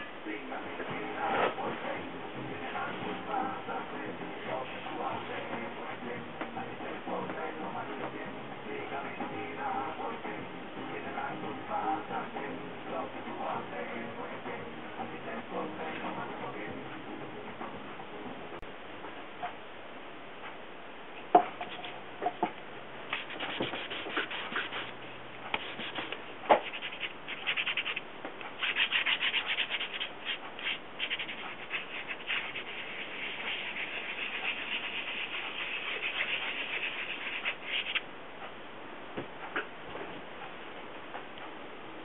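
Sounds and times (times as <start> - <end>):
tool rubbing colour onto surface: 23.1 - 25.0, 25.6 - 28.0, 28.6 - 38.0.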